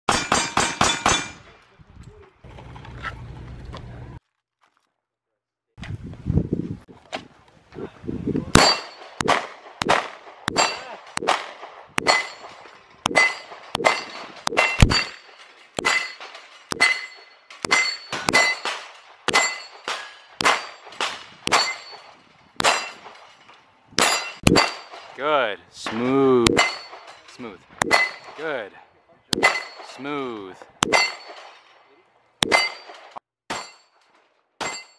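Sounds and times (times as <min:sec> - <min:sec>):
steel targets ringing: 0:08.6 - 0:09.2, 0:10.5 - 0:11.0, 0:12.0 - 0:23.2, 0:24.0 - 0:25.1, 0:26.5 - 0:28.5, 0:29.3 - 0:31.7, 0:32.4 - 0:34.0, 0:34.6 - 0:34.9.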